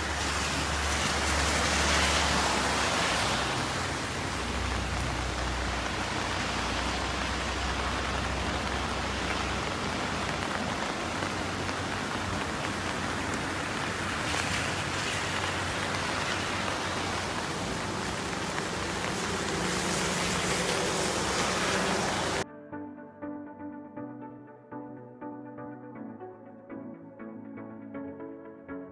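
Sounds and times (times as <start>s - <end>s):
heavy rain hissing: 0.0s - 22.4s.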